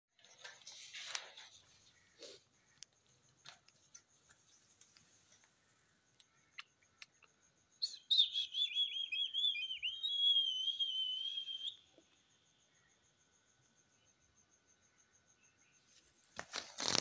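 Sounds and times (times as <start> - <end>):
parakeet whistling: 7.9 - 11.8.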